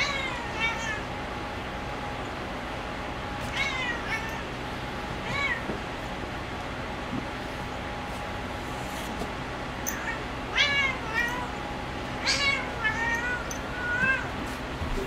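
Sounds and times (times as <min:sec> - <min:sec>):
cat meowing: 0:00.0 - 0:01.1, 0:03.4 - 0:04.6, 0:05.2 - 0:05.7, 0:09.9 - 0:11.6, 0:12.2 - 0:14.4.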